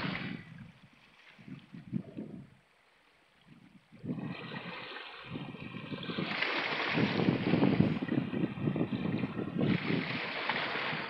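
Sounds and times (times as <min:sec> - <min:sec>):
waves washing over rocks: 0:00.0 - 0:00.5, 0:04.1 - 0:11.0.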